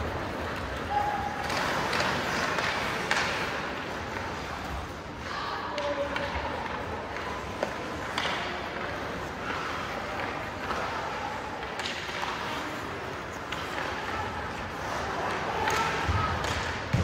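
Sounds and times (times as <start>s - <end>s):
skates scraping ice: 0.0s - 16.6s
hockey stick hits: 1.4s - 4.2s, 5.8s - 10.9s, 11.6s - 12.7s, 15.2s - 17.0s.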